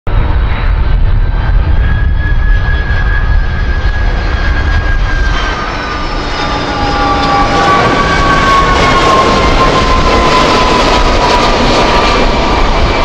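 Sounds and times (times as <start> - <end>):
jet engines rumbling and whining: 0.1 - 13.0.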